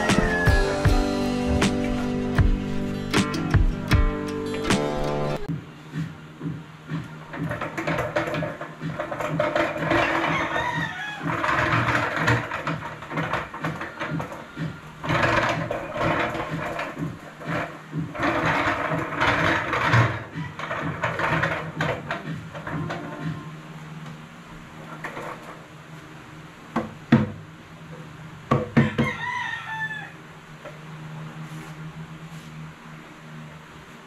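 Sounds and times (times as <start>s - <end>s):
rooster crowing: 0.0s - 1.1s, 9.9s - 12.2s, 28.8s - 30.3s
table legs scraping on tiled floor: 7.3s - 23.5s, 24.8s - 25.7s.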